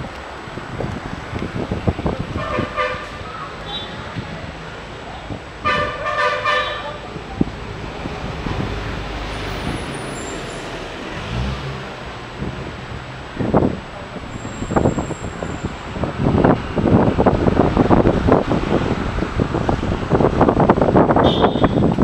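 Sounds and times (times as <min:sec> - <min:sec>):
road noise hum: 0:00.0 - 0:22.0
vehicle horn tooting: 0:02.3 - 0:04.0, 0:05.6 - 0:07.0, 0:21.2 - 0:21.9.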